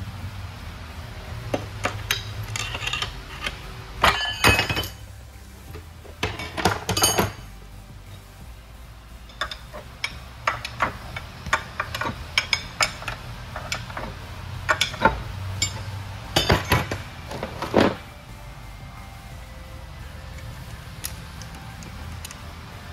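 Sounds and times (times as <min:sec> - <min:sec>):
low shop hum: 0:00.0 - 0:22.9
steel tools clanking on metal: 0:01.6 - 0:05.1, 0:06.2 - 0:07.5, 0:09.3 - 0:18.0.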